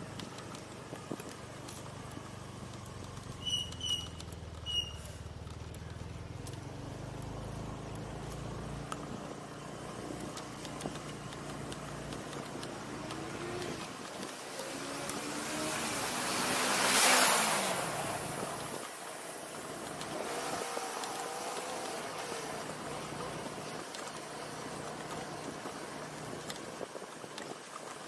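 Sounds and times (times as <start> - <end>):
motorbike engine running: 0.0 - 16.6
wind and road noise: 0.0 - 28.0.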